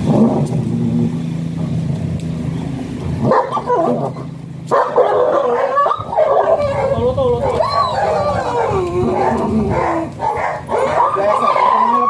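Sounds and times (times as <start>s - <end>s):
engine hum: 0.0s - 12.0s
dog whining and yelping: 5.1s - 11.8s.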